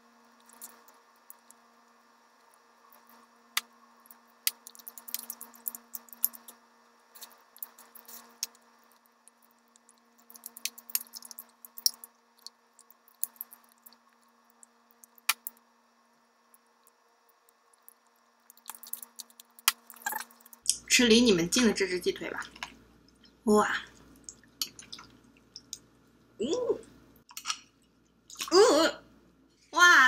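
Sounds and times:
person chewing: 4.4 - 6.6, 7.2 - 15.6, 17.7 - 20.6.

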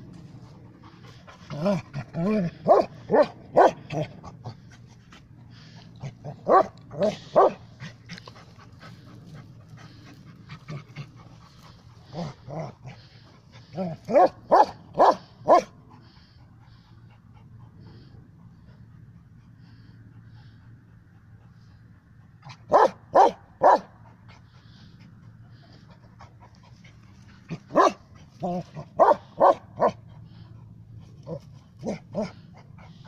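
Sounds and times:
dog barking: 2.7 - 3.8, 6.5 - 7.6, 14.1 - 15.7, 22.7 - 23.9, 27.7 - 28.0, 29.0 - 30.0.

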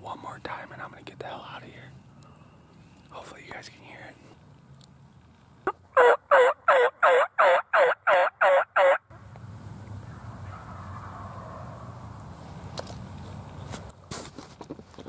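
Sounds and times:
turkey call yelps: 5.7 - 9.0, 10.1 - 11.9.

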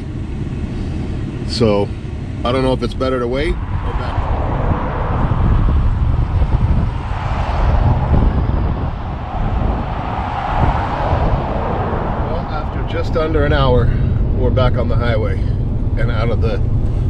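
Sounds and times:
truck engine rumble in cab: 0.0 - 17.0.

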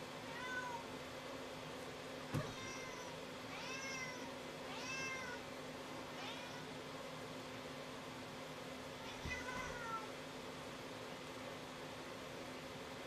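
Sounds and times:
cat meowing: 0.3 - 0.8, 2.4 - 5.4, 6.2 - 6.7, 9.0 - 10.1.

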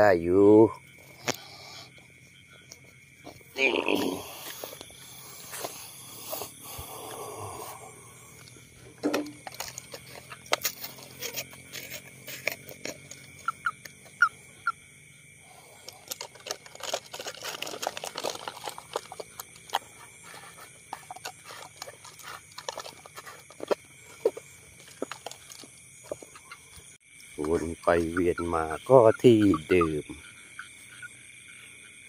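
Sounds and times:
night insects chirring: 0.0 - 32.0
plastic bottle crinkling: 9.0 - 13.6, 15.7 - 26.4.

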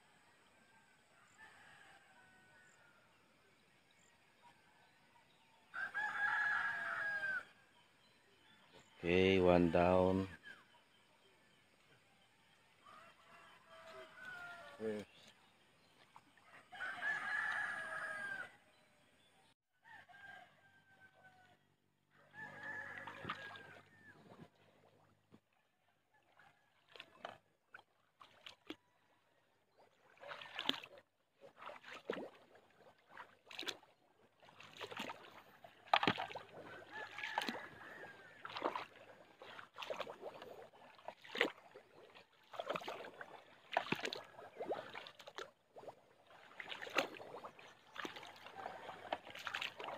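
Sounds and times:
rooster crowing: 5.7 - 7.5, 12.8 - 14.8, 16.5 - 18.6, 19.8 - 23.9, 36.8 - 38.5
footsteps wading through muddy water: 12.5 - 18.4, 22.3 - 49.9.

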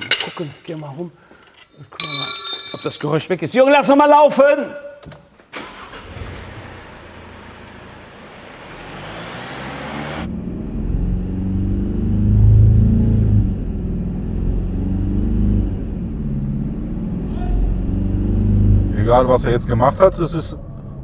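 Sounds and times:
diesel engine revving: 5.6 - 21.0.

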